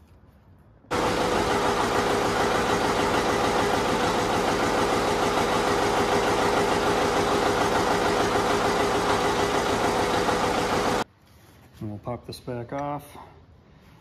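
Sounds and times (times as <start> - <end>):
diesel tractor engine running: 0.9 - 11.0.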